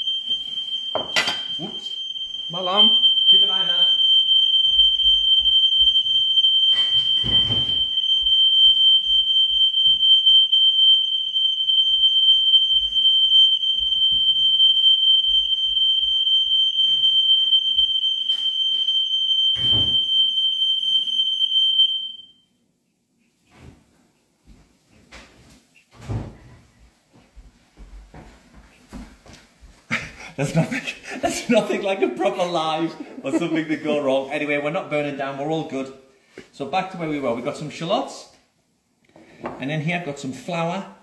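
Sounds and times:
smoke alarm tone: 0.0s - 22.6s, 31.0s - 35.4s.

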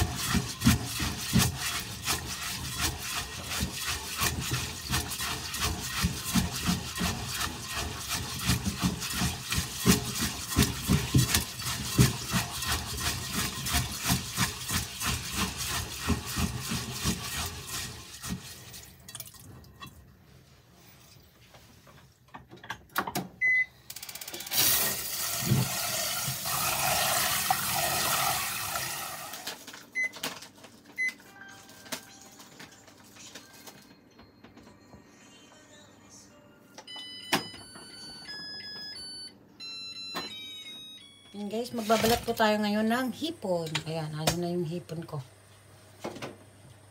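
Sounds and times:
short beeps: 36.9s - 41.4s.

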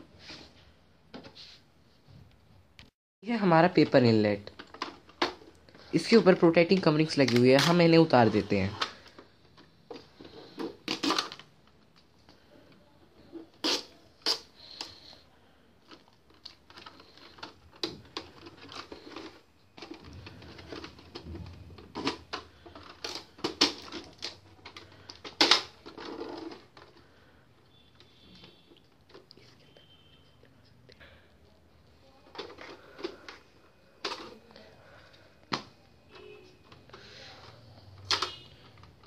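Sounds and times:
tape being peeled: 13.4s - 15.0s.

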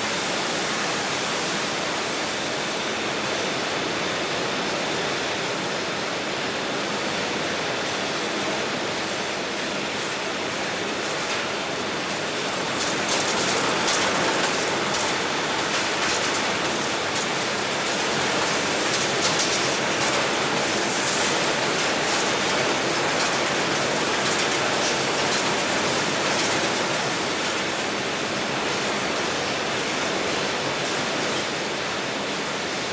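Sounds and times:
machinery clicks and rattles: 11.1s - 28.2s.

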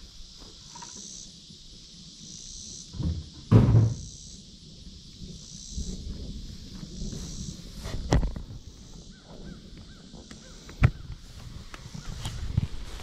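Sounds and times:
insects buzzing: 0.0s - 13.0s
low thump: 2.9s - 4.1s.

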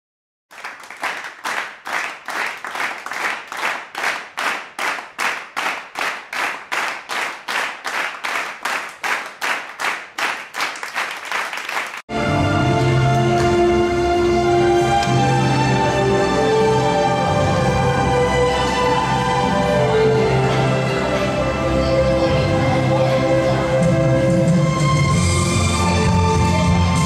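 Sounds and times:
crowd clapping in unison: 0.5s - 12.1s, 13.1s - 13.6s
music: 12.1s - 27.0s.

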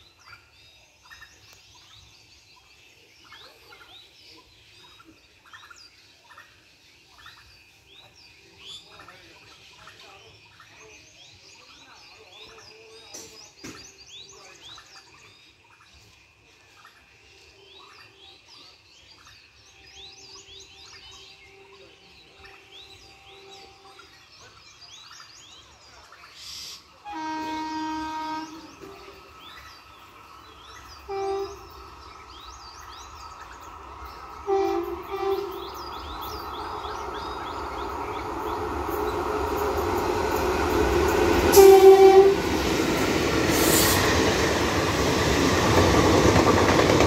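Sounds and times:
birds chirping: 0.0s - 47.0s
train rumbling: 26.8s - 47.0s
locomotive air horn blasts: 27.0s - 29.1s, 31.0s - 31.8s, 34.4s - 35.8s, 41.4s - 42.7s.

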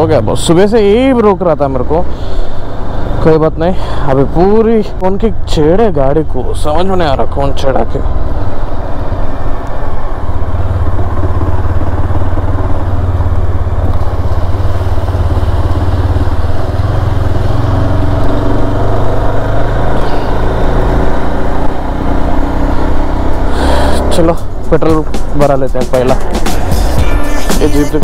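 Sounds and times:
motorcycle engine running: 9.8s - 28.0s.

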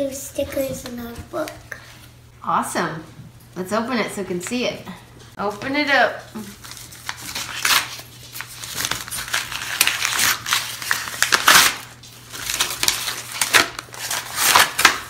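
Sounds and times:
paper envelope ripping: 6.5s - 15.0s.

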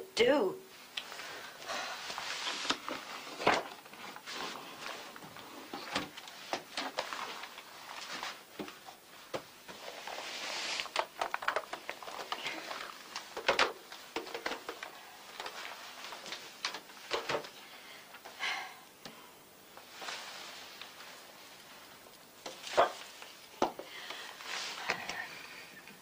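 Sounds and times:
household objects clicking and knocking: 10.8s - 17.6s.

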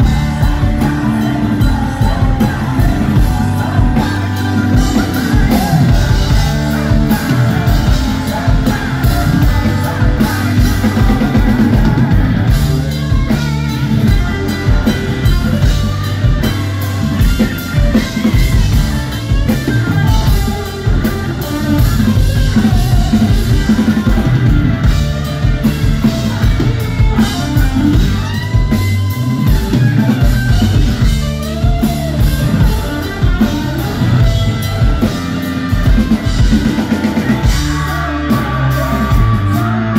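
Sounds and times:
drum kit: 0.0s - 39.9s
electric guitars: 0.0s - 39.9s
live rock band playing: 0.0s - 39.9s
person singing: 0.0s - 39.9s.

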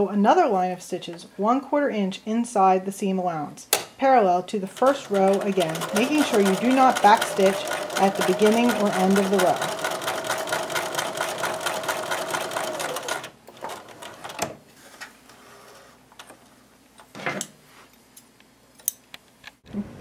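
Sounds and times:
sewing machine stitching: 4.8s - 14.5s.

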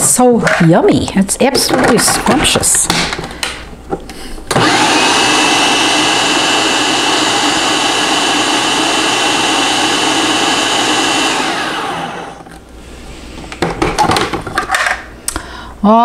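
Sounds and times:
food processor motor whining: 4.5s - 12.6s.

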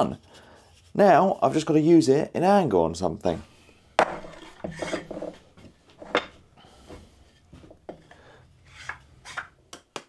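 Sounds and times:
wood scraping on wood: 4.0s - 9.5s.

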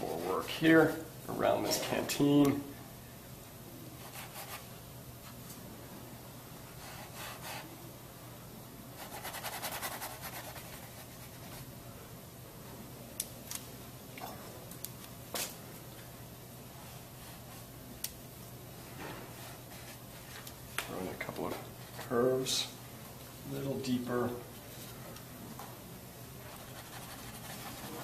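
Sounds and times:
brush dabs: 26.4s - 28.0s.

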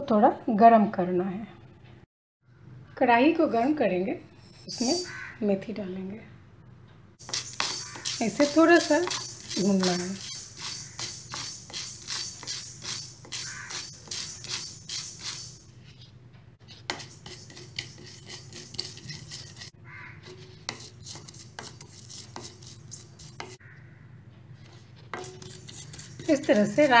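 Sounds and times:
spatula scraping seeds in metal pan: 4.4s - 5.2s, 7.2s - 23.6s, 24.6s - 27.0s
seeds rattling on metal: 7.2s - 15.6s.

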